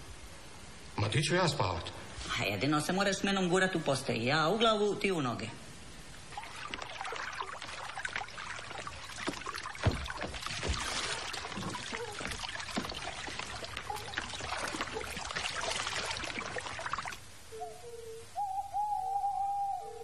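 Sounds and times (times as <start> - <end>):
water lapping against boat: 6.3 - 17.2
dull thump of stepping into boat: 9.3 - 13.0.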